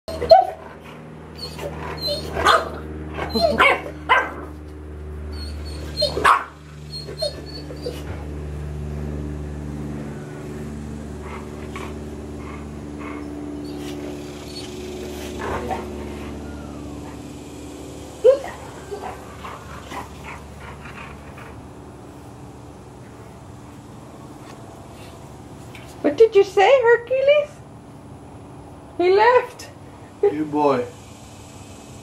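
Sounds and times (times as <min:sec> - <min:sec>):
puppy barking and yipping: 0:00.1 - 0:04.6, 0:05.3 - 0:08.1, 0:13.0 - 0:17.2, 0:18.2 - 0:20.5
steady low hum: 0:00.2 - 0:32.0.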